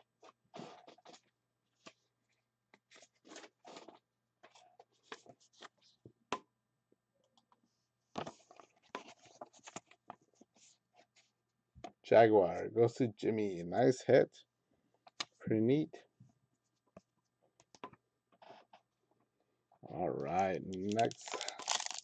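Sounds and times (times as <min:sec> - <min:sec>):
trading cards and sleeves rustling: 0:02.8 - 0:06.0, 0:08.2 - 0:11.3, 0:20.2 - 0:22.0.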